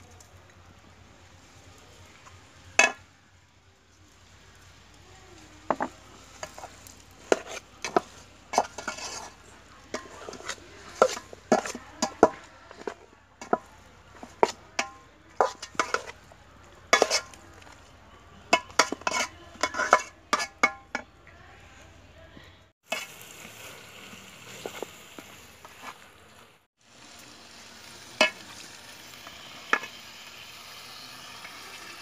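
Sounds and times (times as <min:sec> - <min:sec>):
metal spoon scraping a pot: 0:05.7 - 0:16.3, 0:16.9 - 0:17.8, 0:18.5 - 0:21.1.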